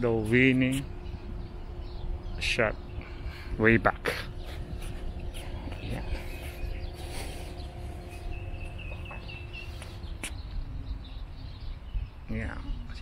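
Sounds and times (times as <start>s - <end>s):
faint steady hum: 0.0s - 13.0s
high bird chirps: 0.0s - 13.0s
steady low rumble: 0.0s - 13.0s.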